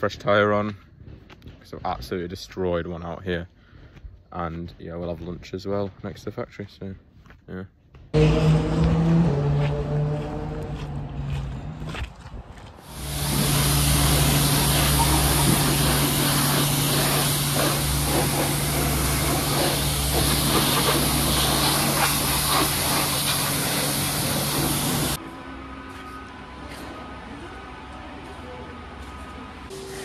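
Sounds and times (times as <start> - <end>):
pressure washer spraying: 12.8 - 25.2.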